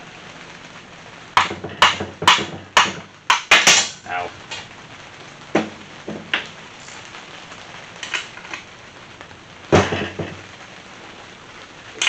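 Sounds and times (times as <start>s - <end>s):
rubber mallet knocking on metal: 1.4s - 3.8s.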